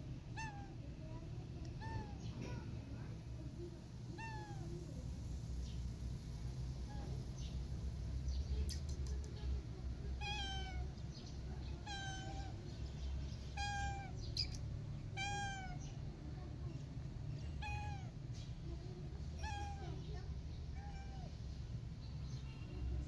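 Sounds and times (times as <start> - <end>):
cat meowing: 0.3 - 0.8, 1.7 - 2.3, 4.1 - 4.8, 10.2 - 10.9, 11.7 - 12.6, 13.4 - 16.0, 17.5 - 18.2, 19.4 - 20.1, 20.7 - 21.4.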